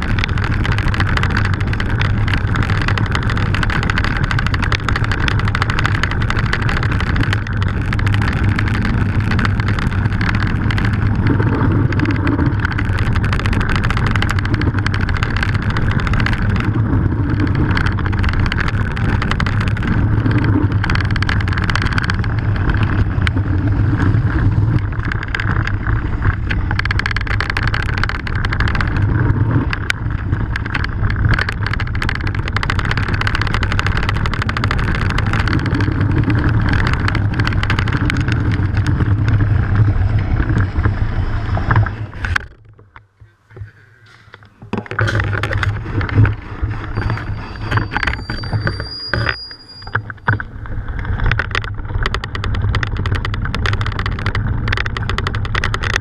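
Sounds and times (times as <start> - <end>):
bike rattling: 0.0 - 56.0
bike tyres on loose stones: 0.0 - 56.0
wind on microphone: 0.0 - 56.0
thin high squeal: 46.8 - 50.1.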